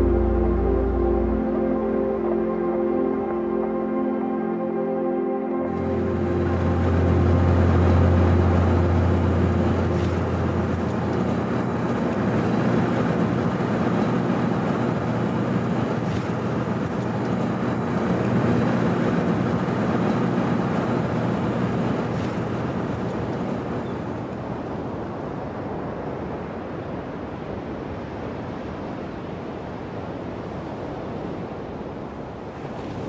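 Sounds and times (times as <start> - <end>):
road noise inside moving car: 0.0 - 3.3, 5.7 - 33.0
low engine drone: 0.0 - 25.6.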